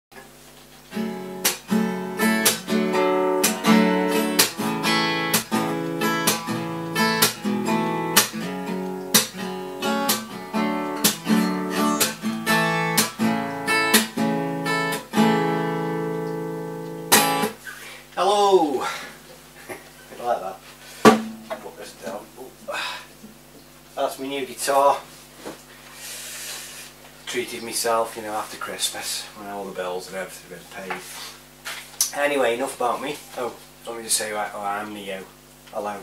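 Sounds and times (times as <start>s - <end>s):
acoustic guitar chords: 0.8s - 17.7s, 21.1s - 21.8s
sharp knock: 21.0s - 21.6s.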